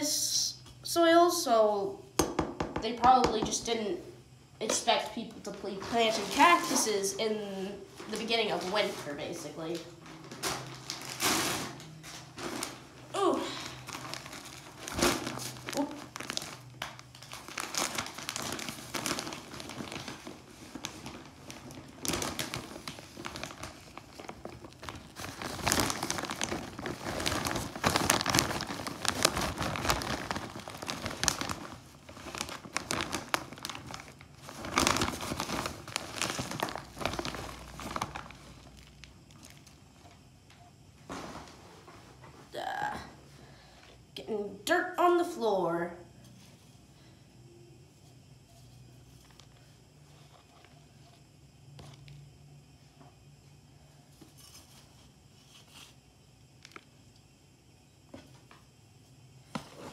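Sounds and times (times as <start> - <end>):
plastic bag crinkling: 8.0 - 40.2.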